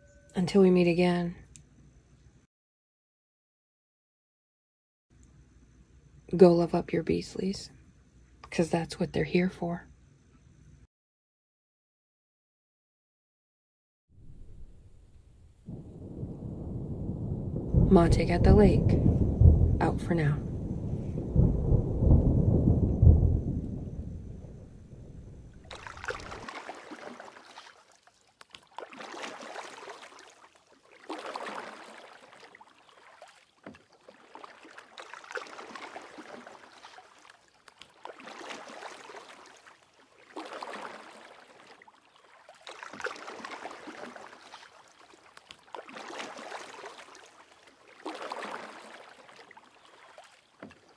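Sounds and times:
low rumble of thunder: 0:14.2 - 0:26.5
water washing in swells: 0:15.6 - 0:50.9.

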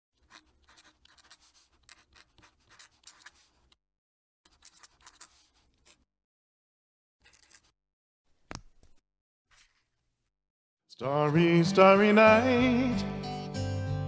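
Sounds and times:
pen nib scratching paper: 0:00.2 - 0:03.8, 0:04.5 - 0:06.1, 0:07.2 - 0:07.7.

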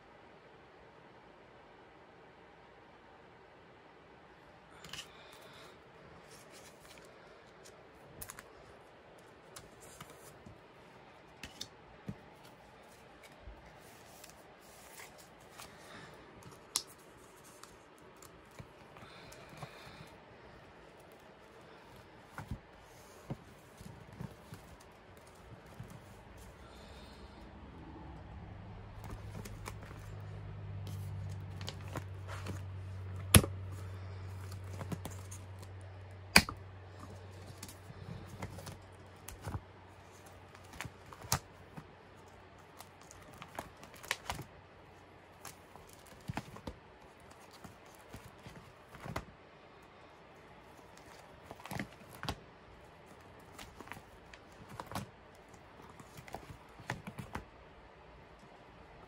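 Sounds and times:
low hum: 0:24.3 - 0:38.4
plastic sleeves crinkling: 0:28.8 - 0:49.3, 0:50.4 - 0:57.5
sharp plastic snaps: 0:36.3 - 0:36.6.

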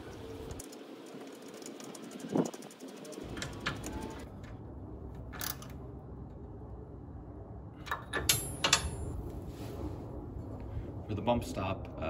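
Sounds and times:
low steady hum: 0:00.0 - 0:12.0
metal clicks and clinks: 0:07.8 - 0:09.1
metallic ring: 0:08.2 - 0:09.2.

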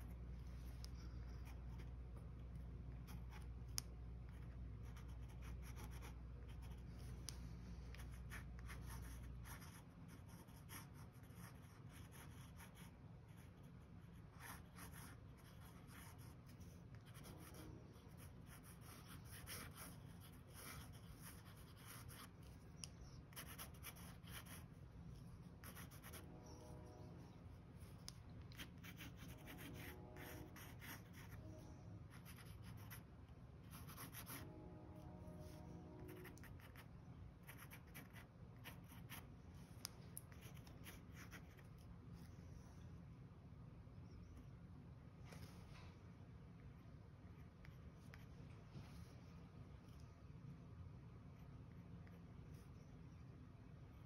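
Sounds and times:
pen scratching on paper: 0:02.5 - 0:07.2, 0:07.9 - 0:24.7, 0:25.5 - 0:26.6, 0:27.8 - 0:31.4, 0:32.1 - 0:33.0, 0:33.7 - 0:34.4, 0:36.2 - 0:39.3, 0:40.3 - 0:41.6
low hum: 0:24.6 - 0:32.3, 0:33.0 - 0:37.5.

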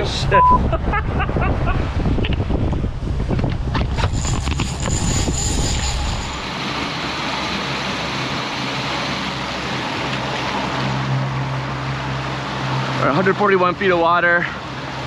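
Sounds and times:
wind buffeting microphone: 0:00.0 - 0:07.1
boat wake water rushing: 0:00.0 - 0:15.0
outboard motors humming: 0:00.0 - 0:15.0.

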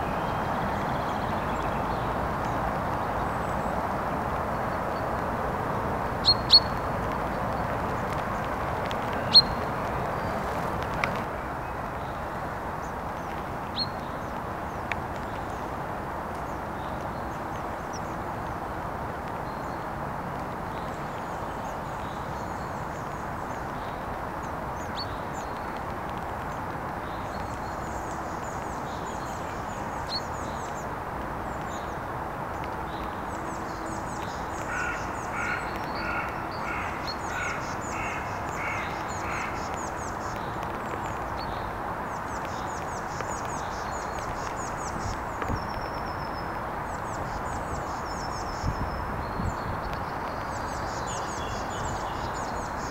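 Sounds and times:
songbirds chirping and trilling: 0:00.0 - 0:52.9
steady background noise: 0:00.0 - 0:52.9.

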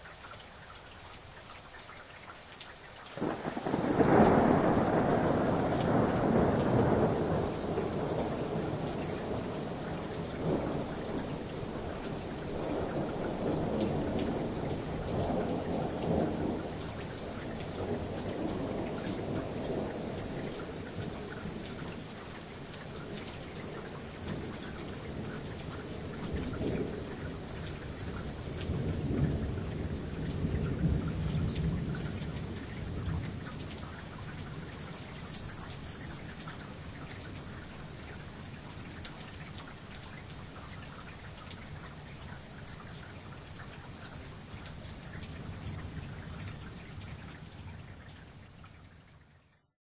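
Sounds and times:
steady rain: 0:00.0 - 0:49.8
thunder rumbling: 0:03.2 - 0:39.0, 0:44.3 - 0:47.8.

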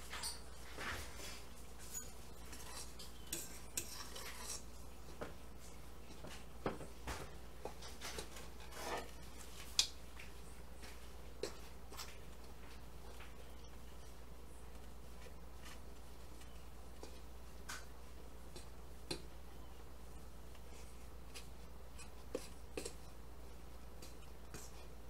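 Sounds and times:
fork stirring mixture in bowl: 0:01.2 - 0:06.6, 0:20.1 - 0:25.0.

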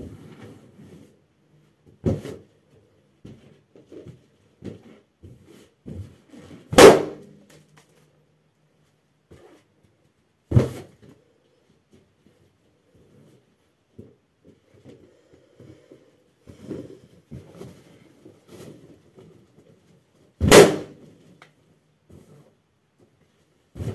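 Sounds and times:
balloons bursting: 0:06.7 - 0:07.3, 0:20.4 - 0:21.0.

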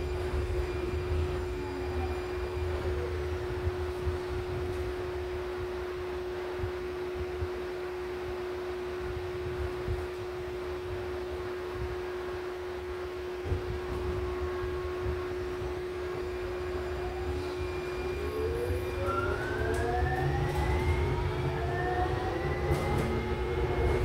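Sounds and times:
train rumble: 0:00.0 - 0:24.0
traction motor whine: 0:14.3 - 0:24.0.

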